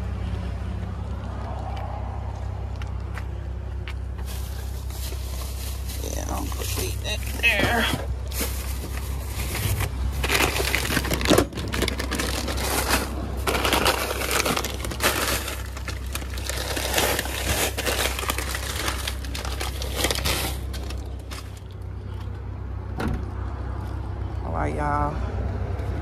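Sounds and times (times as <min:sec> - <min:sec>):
plastic bags rustling: 0:04.2 - 0:21.8.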